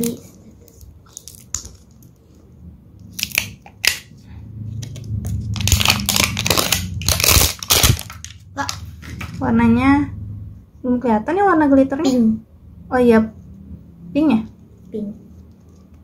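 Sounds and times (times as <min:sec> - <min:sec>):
plastic wrapper crinkling: 0:00.0 - 0:02.2, 0:05.4 - 0:09.4.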